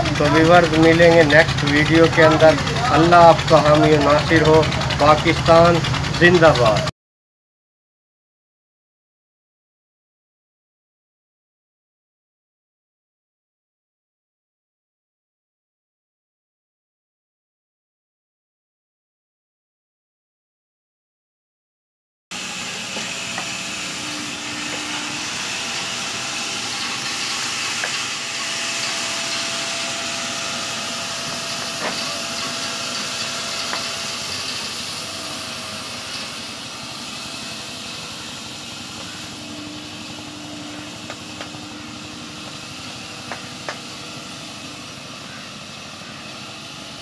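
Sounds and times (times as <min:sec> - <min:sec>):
sawmill machinery hissing: 0:00.0 - 0:06.9, 0:22.3 - 0:47.0
faint machine whines: 0:22.4 - 0:47.0.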